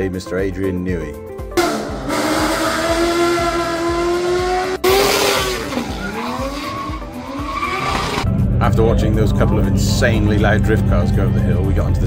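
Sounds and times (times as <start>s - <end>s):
car engine at high revs: 1.6s - 8.3s
tyres screeching: 1.6s - 8.3s.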